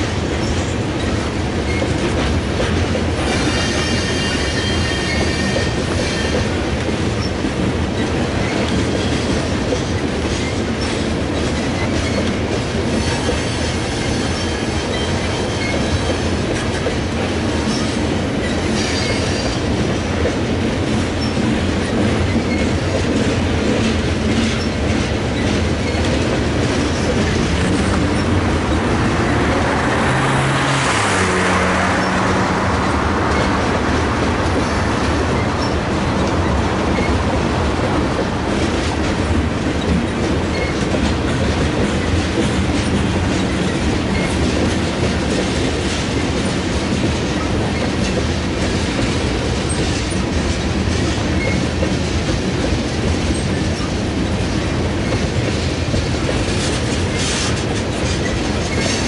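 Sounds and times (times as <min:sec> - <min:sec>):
freight train wheels rumbling: 0:00.0 - 0:59.0.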